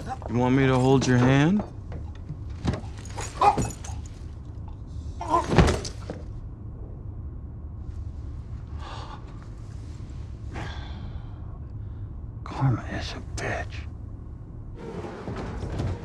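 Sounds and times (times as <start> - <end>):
low rumble: 6.2 - 16.0.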